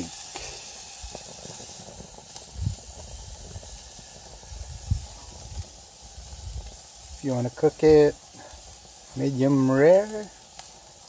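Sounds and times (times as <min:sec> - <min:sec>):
steaks sizzling on grill: 0:00.0 - 0:11.0.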